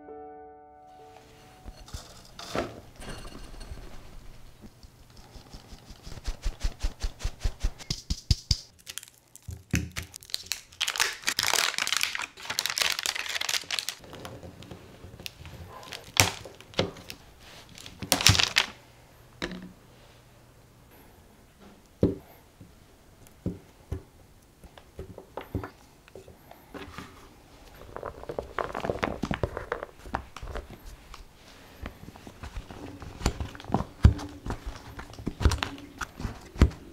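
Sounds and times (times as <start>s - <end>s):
foil butter wrapper crinkling: 8.7s - 14.3s, 15.2s - 18.8s, 27.8s - 31.3s.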